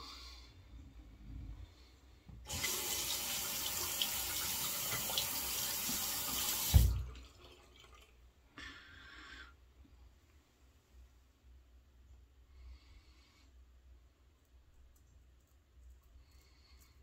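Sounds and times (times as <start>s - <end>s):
tap running: 4.4s - 7.1s.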